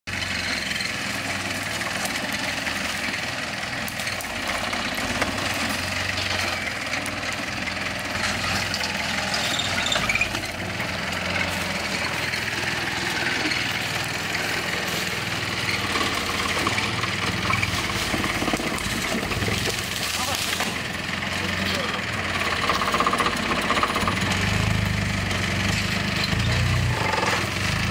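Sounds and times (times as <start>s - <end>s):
car engine running: 0.1s - 27.9s.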